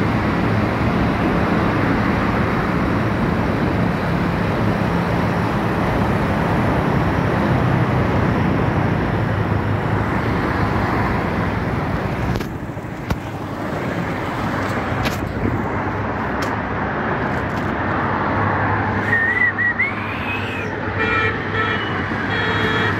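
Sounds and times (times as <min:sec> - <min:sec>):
low engine hum: 0:00.0 - 0:21.0
roadside traffic noise: 0:00.0 - 0:22.9
wind and road noise: 0:00.0 - 0:22.9
wavering whistle: 0:19.0 - 0:20.7.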